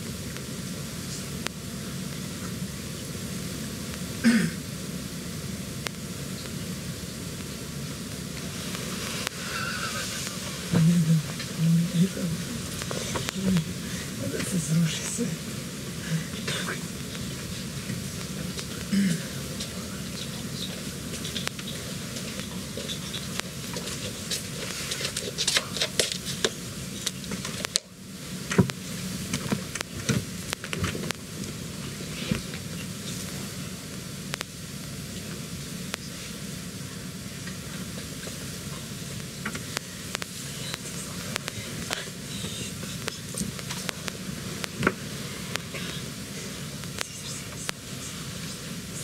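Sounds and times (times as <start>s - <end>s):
microphone hiss: 0.0s - 49.0s
murmured voice: 9.2s - 21.0s.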